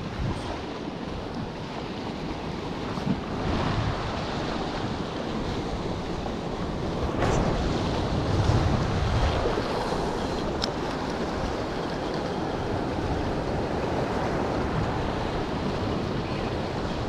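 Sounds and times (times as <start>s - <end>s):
surf washing over rocks: 0.0s - 17.0s
wind buffeting microphone: 0.0s - 17.0s.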